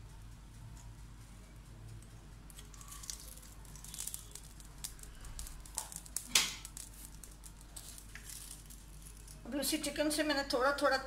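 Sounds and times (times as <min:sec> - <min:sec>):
chicken crackling in hot oil: 0:02.4 - 0:10.2.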